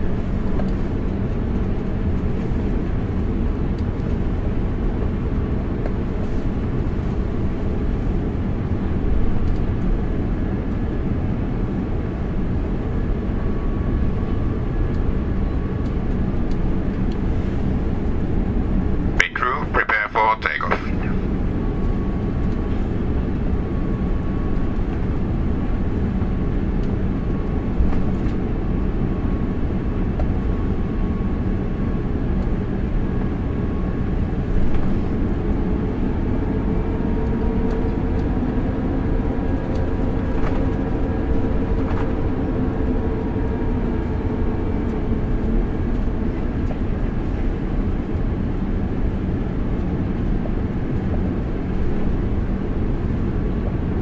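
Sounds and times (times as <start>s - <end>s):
aircraft cabin rumble: 0.0s - 54.0s
jet engine whine: 0.0s - 54.0s.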